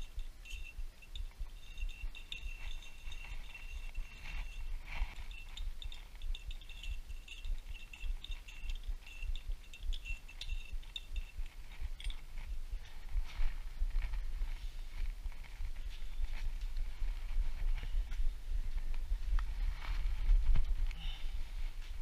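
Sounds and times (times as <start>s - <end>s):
metallic clinks of hand tools: 0.0s - 12.9s
faint high steady whine: 0.0s - 22.0s.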